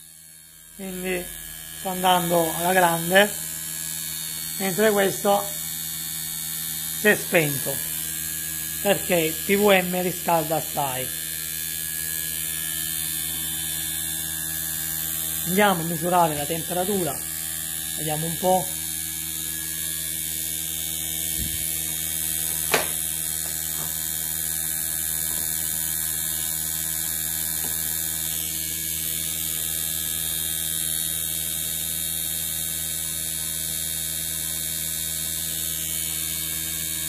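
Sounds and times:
air conditioner compressor humming: 0.3 - 28.7.

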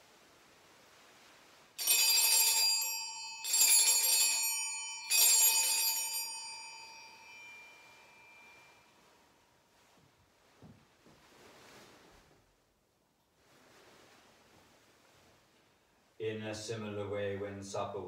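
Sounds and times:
altar bells jangling: 1.8 - 8.9.

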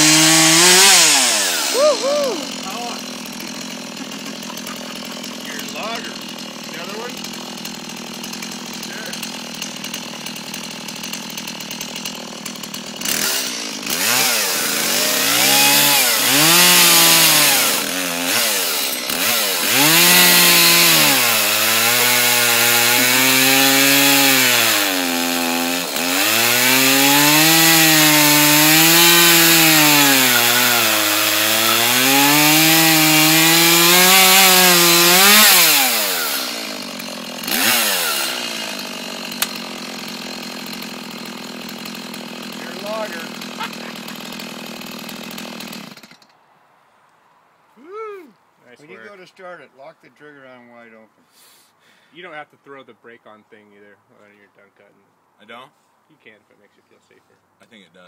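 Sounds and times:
chainsaw cutting through log: 0.0 - 46.3
chainsaw idling and revving: 0.0 - 46.4.

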